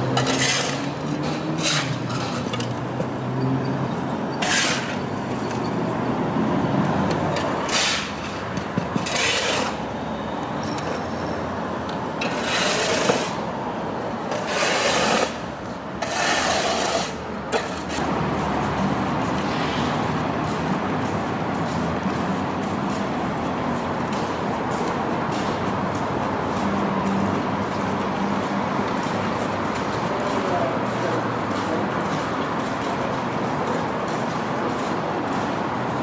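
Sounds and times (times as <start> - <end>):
shovels scraping concrete: 0.0 - 2.8, 4.4 - 5.7, 7.3 - 9.9, 12.2 - 13.5, 14.3 - 18.1.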